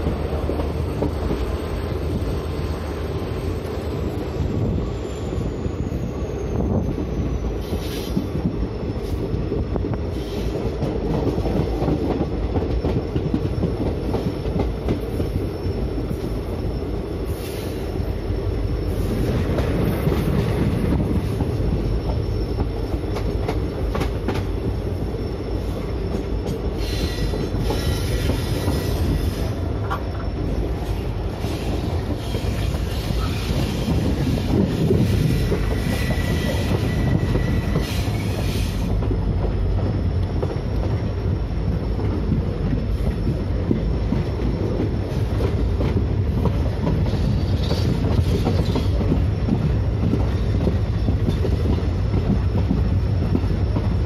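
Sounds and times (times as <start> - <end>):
train wheels rumbling on rails: 0.0 - 54.0
thin wheel squeal: 26.8 - 38.9.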